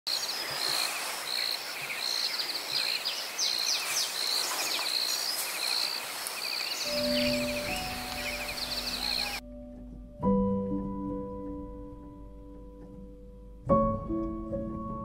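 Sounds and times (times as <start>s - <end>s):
steady hiss: 0.2s - 9.0s.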